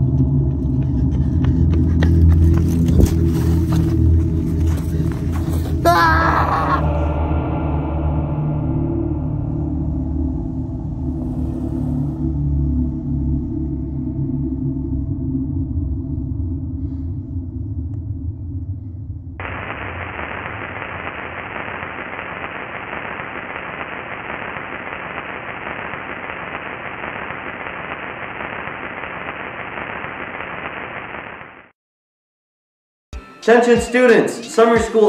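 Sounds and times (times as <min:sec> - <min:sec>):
low electronic drone: 0:00.0 - 0:26.0
static hiss: 0:19.4 - 0:31.7.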